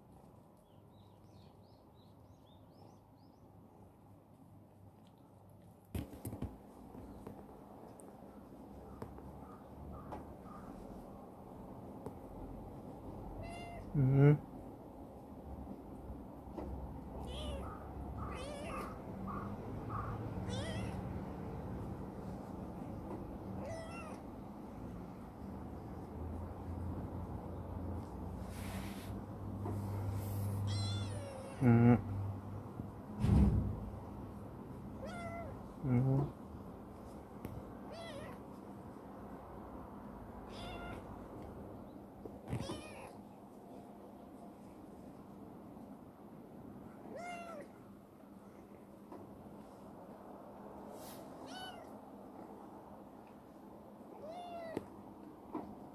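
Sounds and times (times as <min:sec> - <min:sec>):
kitten meowing: 0:13.4 - 0:13.9, 0:17.2 - 0:19.0, 0:20.4 - 0:21.0, 0:23.6 - 0:24.2, 0:30.7 - 0:31.6, 0:35.0 - 0:35.6, 0:37.9 - 0:38.4, 0:40.5 - 0:41.1, 0:42.5 - 0:43.2, 0:47.1 - 0:47.7, 0:51.4 - 0:51.9, 0:54.2 - 0:54.9.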